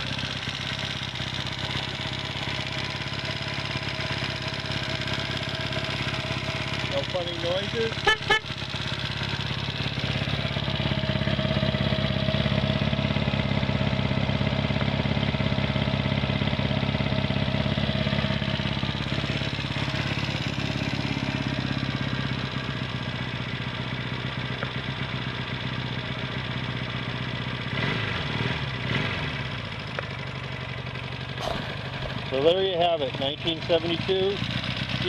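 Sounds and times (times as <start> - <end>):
engine revving: 0.0 - 13.0, 27.6 - 29.7, 31.3 - 35.0
motorcycle engine idling: 0.0 - 35.0.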